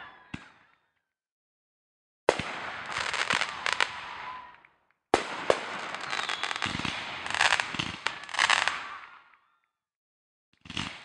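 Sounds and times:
firework sharp crack: 0:02.3 - 0:04.6, 0:05.2 - 0:09.4
fireworks crackling and hissing: 0:02.3 - 0:04.6, 0:05.2 - 0:09.3.

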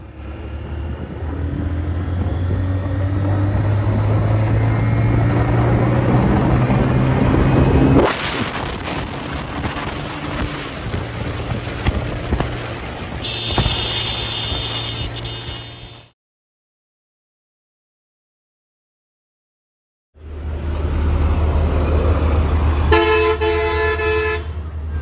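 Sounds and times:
motorcycle engine accelerating: 0:00.0 - 0:15.8
wind noise: 0:00.2 - 0:14.8.

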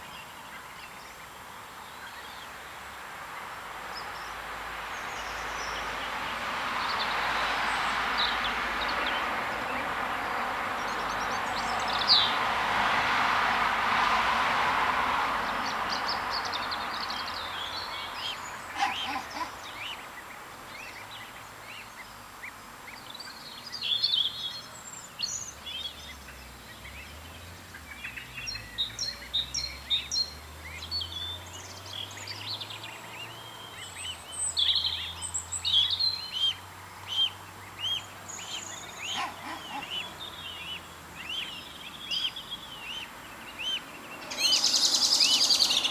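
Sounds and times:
small birds chirping: 0:00.0 - 0:12.6, 0:15.4 - 0:45.9
broad rushing noise: 0:03.0 - 0:20.6, 0:38.8 - 0:40.3.

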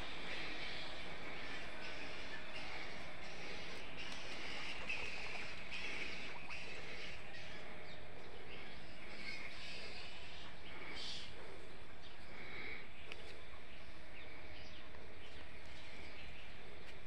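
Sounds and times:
short bird calls: 0:00.0 - 0:11.4.

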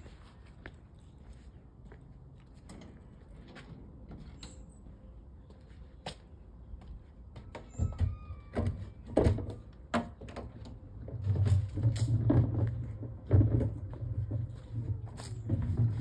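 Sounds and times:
footsteps on pavement: 0:00.0 - 0:07.6, 0:13.9 - 0:16.0.

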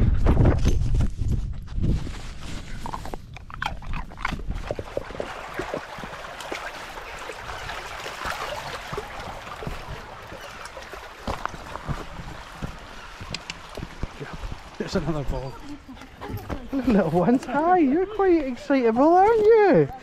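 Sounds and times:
dogs splashing in water: 0:03.6 - 0:19.3
stream running over stones: 0:03.9 - 0:20.0.

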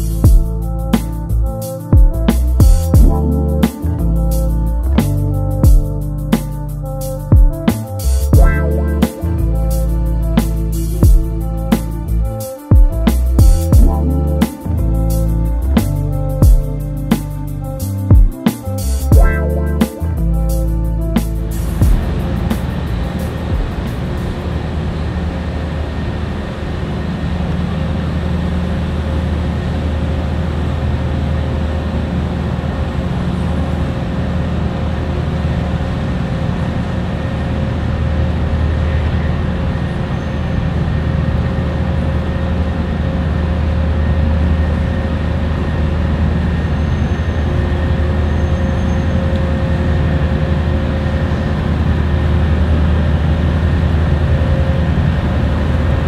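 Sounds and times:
steady hum: 0:00.0 - 0:30.8
diesel engines rumbling: 0:00.0 - 0:56.0.

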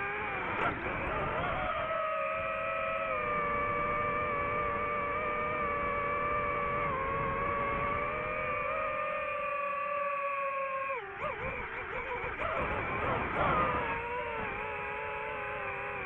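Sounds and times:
drone propellers whining: 0:00.0 - 0:16.0.

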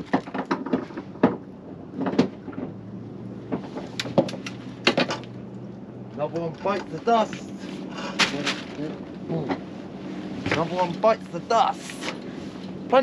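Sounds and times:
sharp knocks and clunks: 0:00.0 - 0:02.8, 0:03.4 - 0:05.3.

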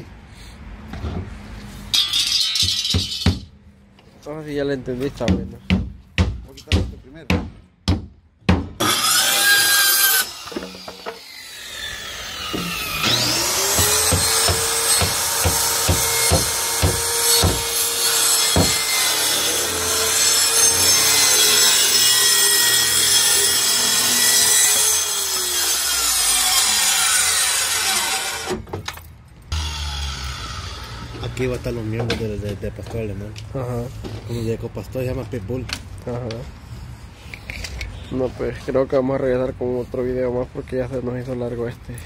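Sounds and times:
circular saw cutting plywood: 0:08.8 - 0:28.6, 0:29.5 - 0:31.7.

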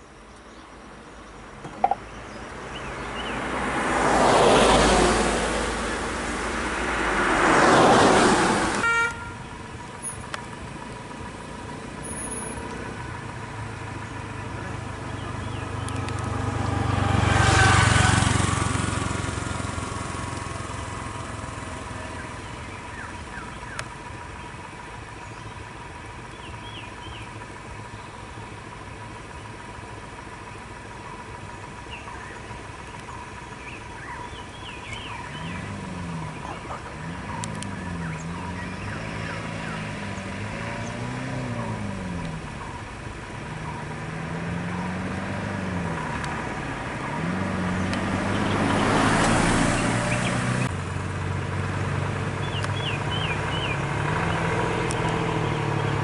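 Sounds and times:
vehicle passing: 0:01.8 - 0:08.9, 0:09.5 - 0:23.0, 0:33.9 - 0:56.0.

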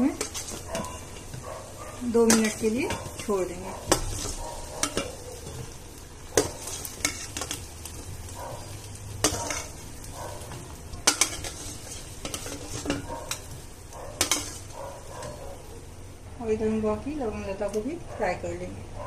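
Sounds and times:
oil sizzling: 0:00.0 - 0:17.9
steel spoon clinking against metal: 0:03.9 - 0:05.6.

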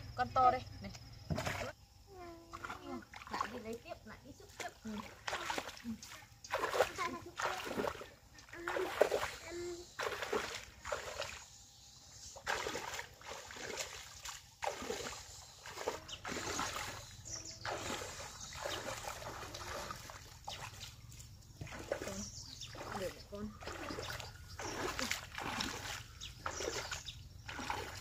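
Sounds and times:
water splashing and sloshing: 0:01.0 - 0:28.0
net sweeping through water: 0:12.4 - 0:17.0, 0:17.6 - 0:20.2, 0:23.6 - 0:26.9.

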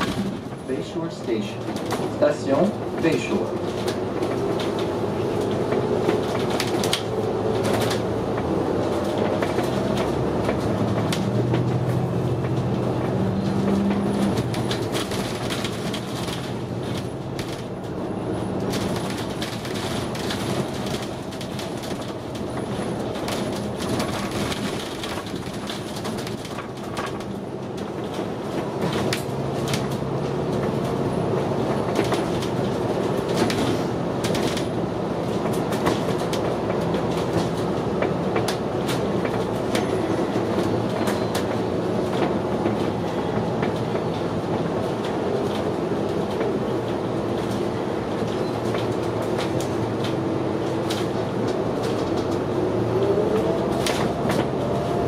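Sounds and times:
bus cabin rattling and clicking: 0:00.0 - 0:55.0
bus engine droning: 0:00.0 - 0:55.0.

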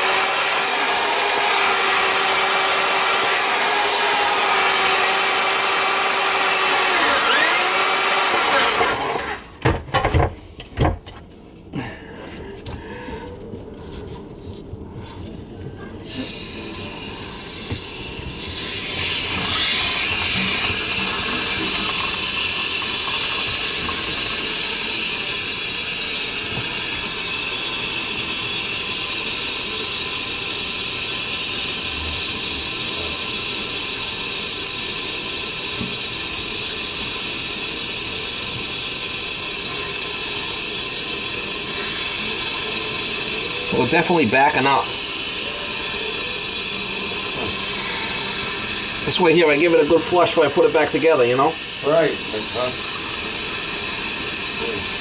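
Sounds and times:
drain snake hiss and whir: 0:16.0 - 0:55.0.

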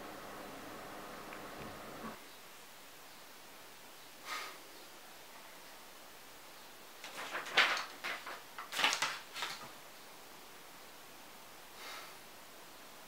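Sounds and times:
paper rustling: 0:07.0 - 0:09.8.

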